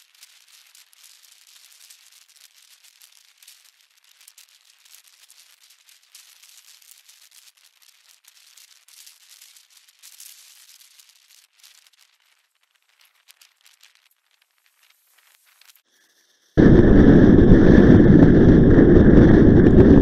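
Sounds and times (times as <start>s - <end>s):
wind rushing over microphone: 16.6s - 20.0s.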